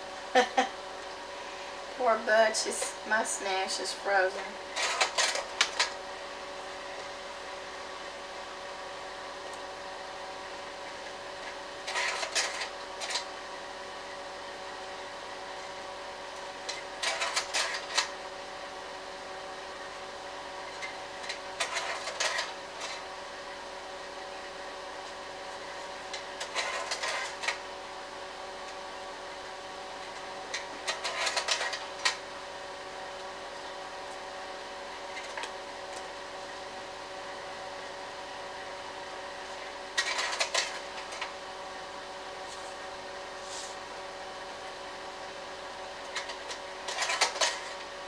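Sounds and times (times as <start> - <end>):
projector cooling fan hum: 0.0 - 48.0
slide mechanism clattering: 26.1 - 27.6, 30.5 - 32.2, 40.0 - 41.3, 46.1 - 47.9.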